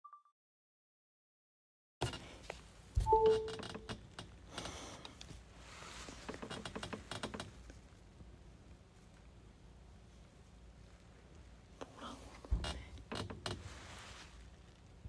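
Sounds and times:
short low beep: 0:03.0 - 0:03.6.

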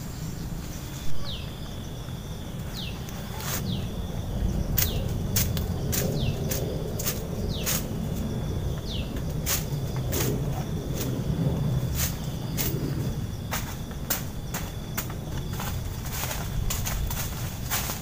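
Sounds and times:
high insect tone: 0:00.0 - 0:18.0
branches crackling and snapping: 0:02.6 - 0:18.0.

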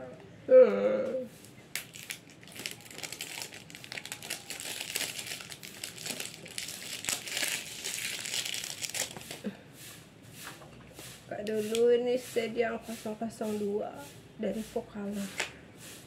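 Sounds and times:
packaging crinkling: 0:01.7 - 0:09.4.

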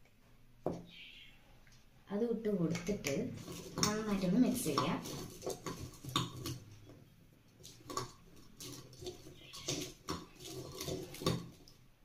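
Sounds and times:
fried balls scraping on a plate: 0:03.3 - 0:06.9, 0:07.6 - 0:11.6.

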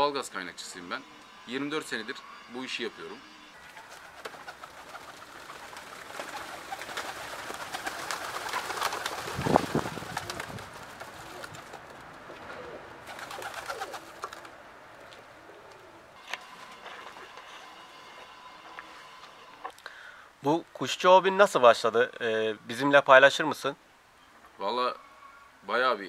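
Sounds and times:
pigeon wings fluttering: 0:03.7 - 0:12.1, 0:13.0 - 0:14.6
pigeons cooing: 0:03.8 - 0:14.5, 0:15.3 - 0:16.2.

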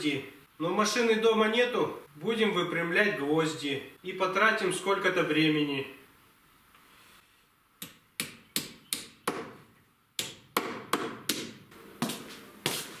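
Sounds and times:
hammer striking nails on metal: 0:10.2 - 0:11.6.

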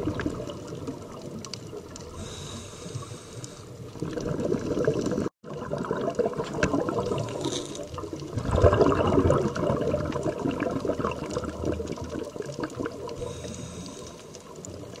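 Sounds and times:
small crackles: 0:00.0 - 0:15.0
water rushing and bubbling: 0:00.0 - 0:15.0.

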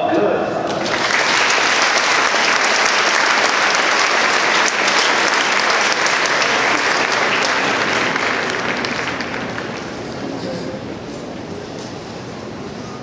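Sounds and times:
large crowd applauding: 0:00.7 - 0:10.8.

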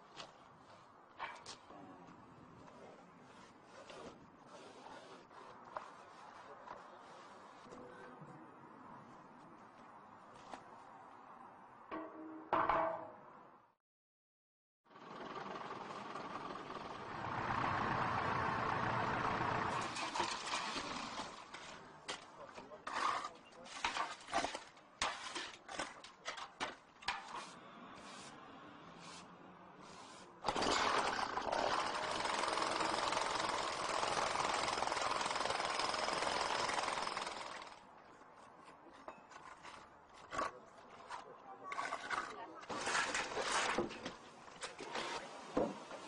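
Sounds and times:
truck engine running: 0:14.9 - 0:19.9.

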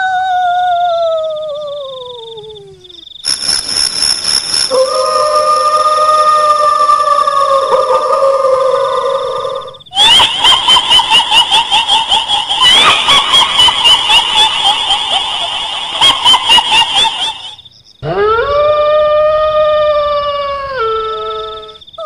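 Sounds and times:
high-pitched warbling chatter: 0:03.2 - 0:10.8.

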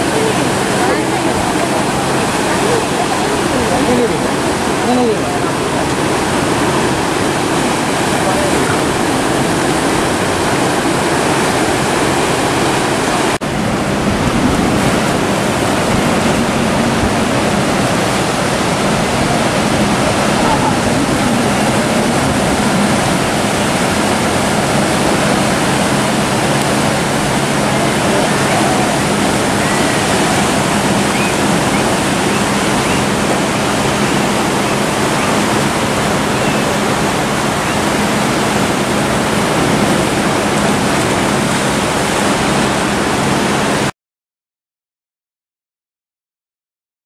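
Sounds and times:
ocean waves breaking on rocks: 0:00.0 - 0:43.9.

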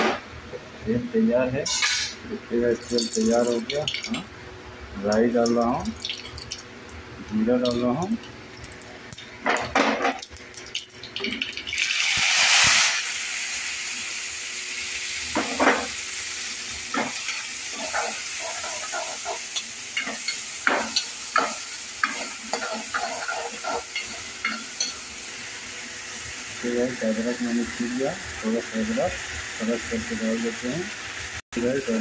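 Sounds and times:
vegetables sizzling in hot oil: 0:07.6 - 0:32.0
metal ladle scraping a pan: 0:21.4 - 0:24.9.

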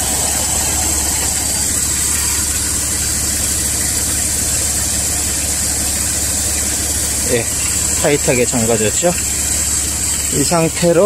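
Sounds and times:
steady high hiss: 0:00.0 - 0:03.7
car engine idling: 0:00.0 - 0:11.0.

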